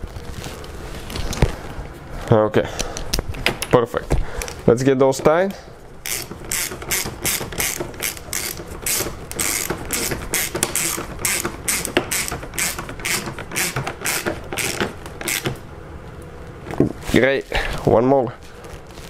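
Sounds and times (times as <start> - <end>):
hand ratchet clicking: 6.0 - 15.6.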